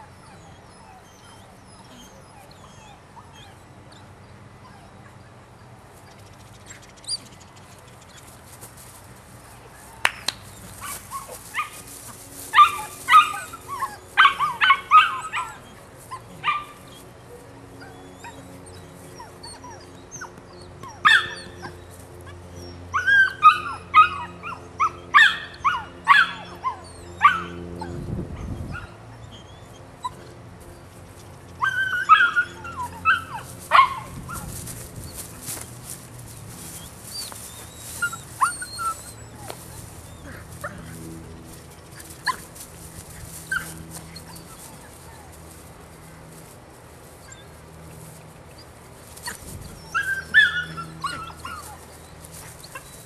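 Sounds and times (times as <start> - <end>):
puppy yipping and barking: 0.0 - 5.2, 12.5 - 17.1, 17.7 - 21.8, 22.6 - 30.2, 31.6 - 35.7, 36.3 - 40.9, 42.0 - 42.6, 43.3 - 45.4, 48.6 - 53.0.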